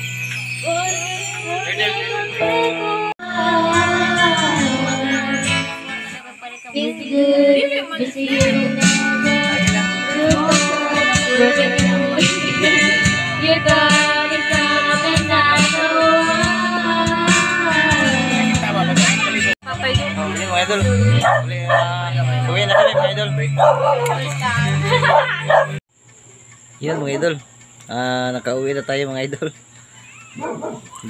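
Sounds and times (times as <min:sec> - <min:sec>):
person singing karaoke: 0:00.6 - 0:25.8
backing track with beat: 0:08.4 - 0:22.4.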